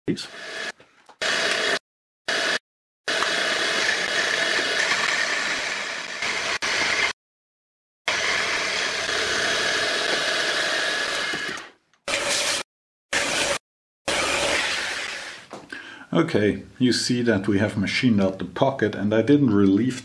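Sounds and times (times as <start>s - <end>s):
engraving machine whining: 0.2s - 7.2s, 8.1s - 12.6s, 13.2s - 15.5s.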